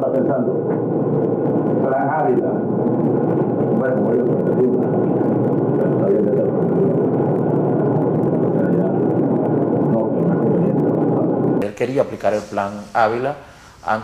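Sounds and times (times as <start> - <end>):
muffled man talking: 0.0 - 0.6, 1.8 - 2.7, 3.7 - 7.1, 11.6 - 14.0
loud steady low noise: 0.0 - 14.0.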